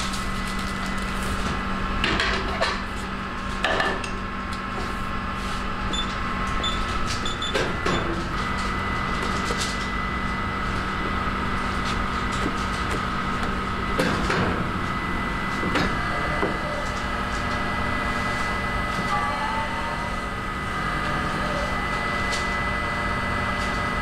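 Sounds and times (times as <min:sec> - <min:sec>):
oven mechanical hum: 0:00.0 - 0:24.0.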